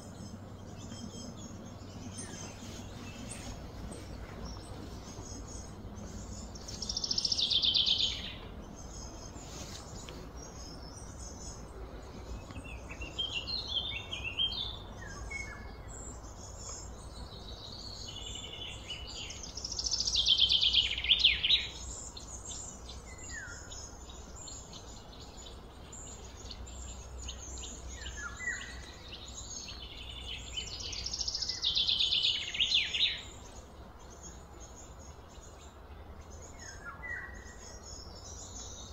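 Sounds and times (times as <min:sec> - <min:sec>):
faint low rumble: 0:00.0 - 0:20.2
songbird trilling: 0:00.0 - 0:35.6
bird chirps: 0:00.0 - 0:38.9.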